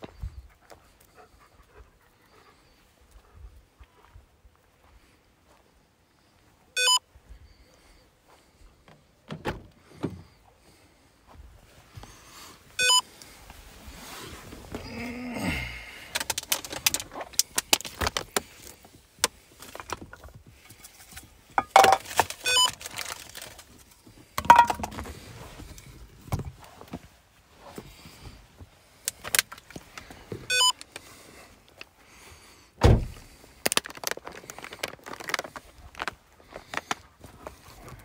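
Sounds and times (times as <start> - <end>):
short electronic beep: 6.8 - 7.0, 12.8 - 13.0, 22.5 - 22.7, 30.5 - 30.7
phone handling rustling: 16.1 - 18.5, 21.6 - 23.6, 24.4 - 25.1.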